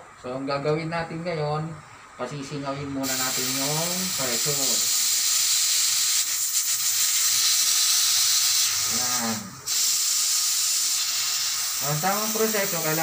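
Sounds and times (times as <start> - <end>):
gas hissing from a hose fitting: 3.0 - 13.0.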